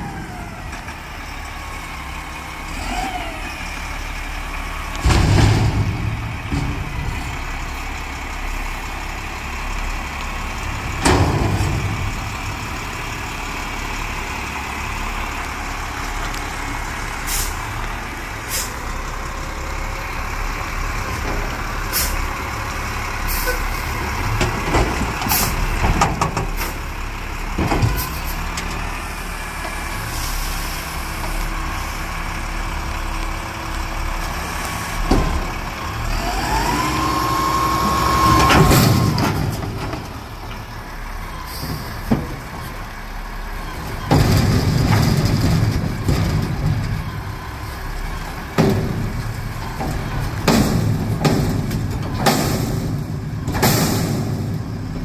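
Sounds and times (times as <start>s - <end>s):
diesel truck engine running: 0.0s - 55.0s
metal knocks and clunks: 5.0s - 7.6s, 24.2s - 26.7s, 41.7s - 42.8s, 43.8s - 47.2s, 48.5s - 55.0s
engine revving with whine: 36.0s - 39.2s.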